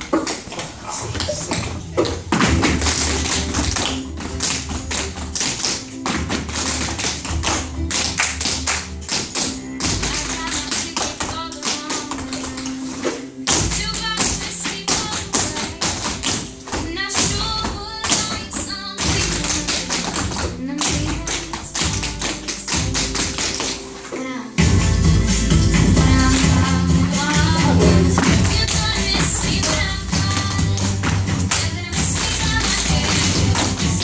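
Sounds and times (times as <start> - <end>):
recorded music with bass line: 24.6 - 34.0.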